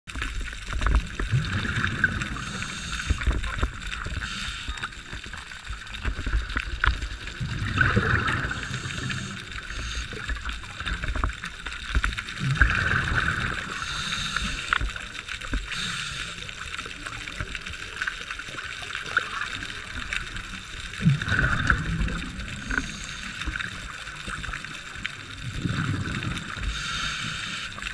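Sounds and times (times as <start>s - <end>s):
underwater exhale bubbling: 0.7s - 17.5s, 19.0s - 27.9s
regulator hiss: 2.3s - 5.2s, 8.4s - 10.4s, 13.6s - 14.8s, 15.7s - 16.5s, 22.5s - 23.6s, 26.6s - 27.9s.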